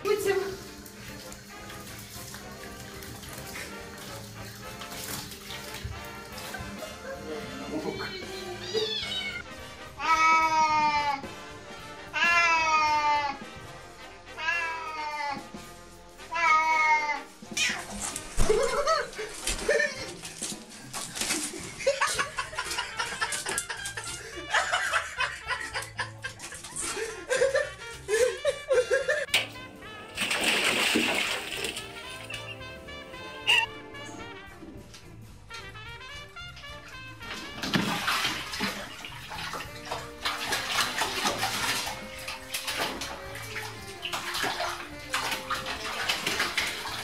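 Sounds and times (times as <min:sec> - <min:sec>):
cat splashing in water: 0:00.0 - 0:09.4, 0:17.5 - 0:27.0, 0:29.3 - 0:32.7, 0:37.2 - 0:47.0
people laughing: 0:06.3 - 0:08.9, 0:18.4 - 0:20.4, 0:21.2 - 0:29.3.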